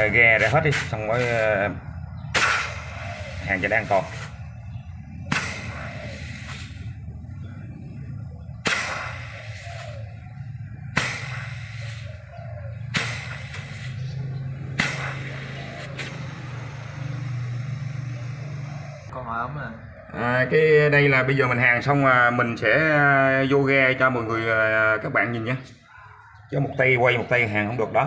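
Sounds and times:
gas spurting from pipe: 2.3 - 4.5, 5.3 - 7.0, 8.5 - 10.1, 10.9 - 12.3, 12.9 - 19.1.

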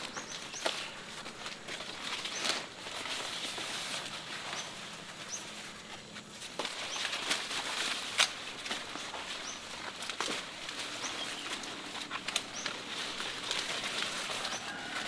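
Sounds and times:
leaves rustling and crackling: 0.0 - 15.0
twigs snapping: 6.4 - 15.0.

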